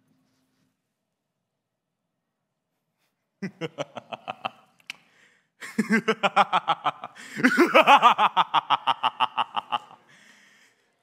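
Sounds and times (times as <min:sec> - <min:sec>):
man laughing: 0:03.4 - 0:04.8, 0:05.6 - 0:10.1.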